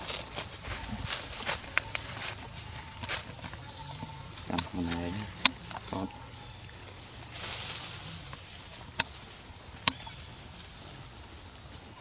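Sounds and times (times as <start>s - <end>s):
rustling hiss: 0.0s - 12.0s
steady high hiss: 4.6s - 11.9s.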